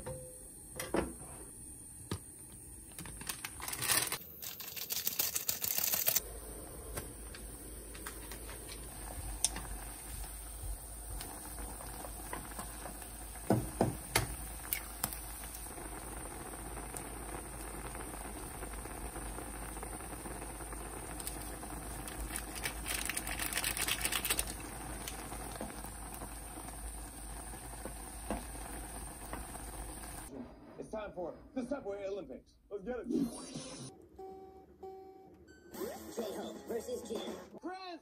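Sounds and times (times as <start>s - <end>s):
noodles boiling in a saucepan: 0.6s - 30.3s.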